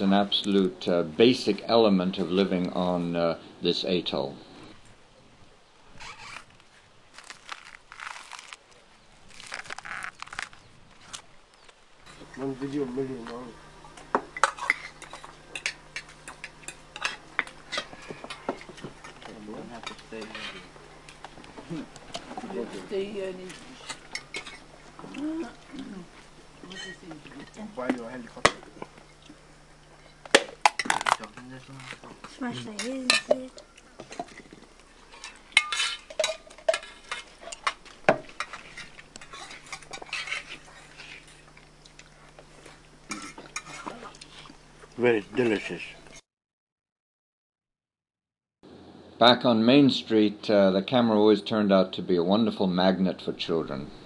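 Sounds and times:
utensils clinking on dishes: 35.1 - 37.8.

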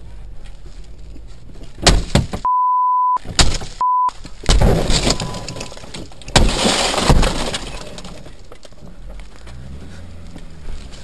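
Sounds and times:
sledgehammer striking windscreen: 1.8 - 2.5
glass cracking and breaking: 4.4 - 8.7.

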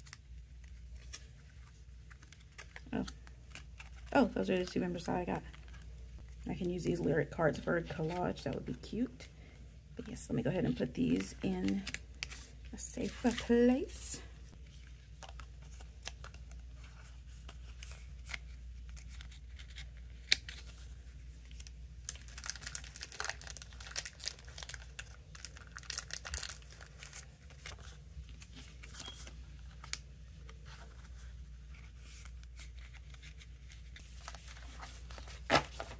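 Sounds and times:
plastic sleeves crinkling: 0.0 - 9.2, 10.0 - 35.9.

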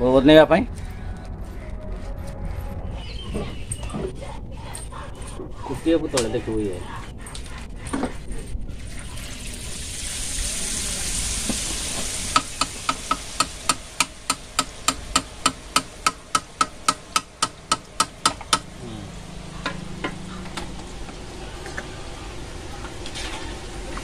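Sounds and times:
batter sizzling in oil: 8.9 - 15.7.

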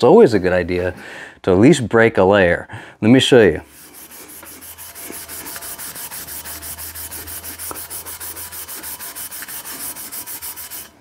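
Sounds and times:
scouring pad scrubbing steel: 3.6 - 11.0.

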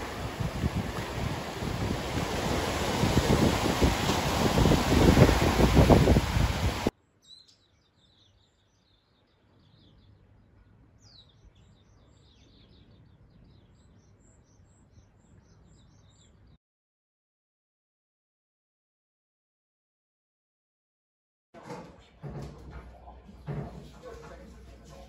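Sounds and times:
sea waves breaking over rocks: 0.0 - 6.9
wind on microphone: 0.0 - 6.9
birds chirping: 0.0 - 16.6.

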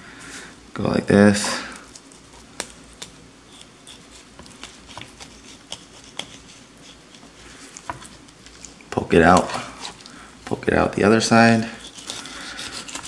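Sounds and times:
knife cutting through fish: 11.8 - 13.0.

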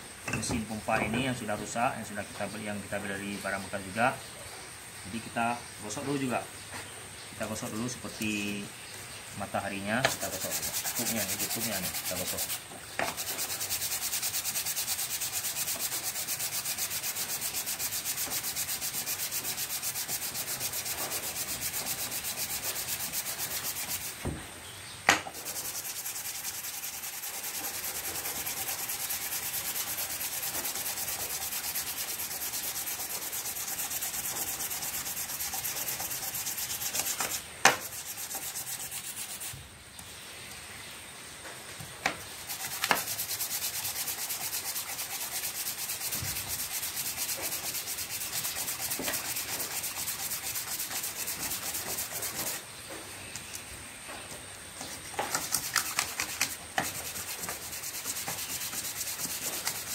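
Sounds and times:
sandpaper rubbing on metal: 9.6 - 24.2, 25.3 - 39.6, 42.4 - 52.6, 54.8 - 59.9.

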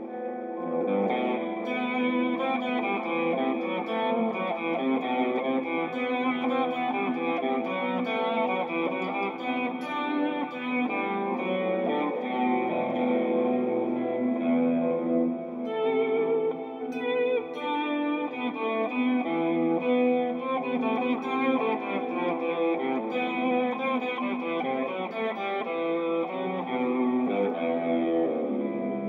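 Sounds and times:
electric guitar picking: 0.0 - 29.0.

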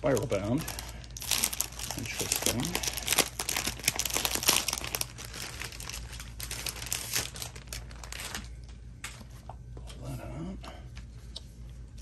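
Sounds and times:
plastic shrink wrap crinkling: 0.0 - 8.8.

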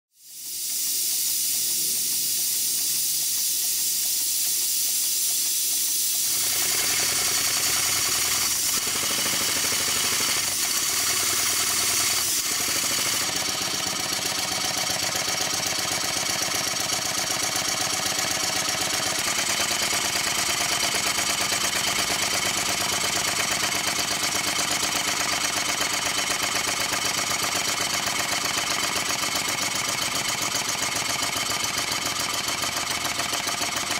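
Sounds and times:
fast steam engine exhaust beats: 0.1 - 33.9
steam hissing: 0.1 - 33.9.

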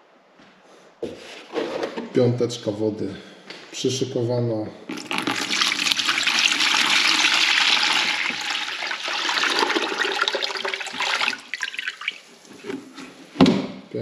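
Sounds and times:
water pouring into plastic bucket: 4.9 - 12.3.

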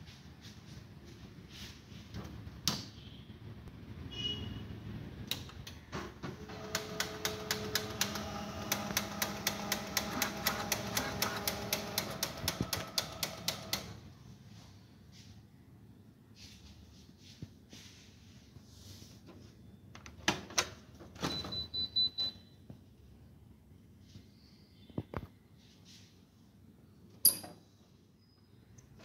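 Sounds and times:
copier drive humming: 6.2 - 14.0.

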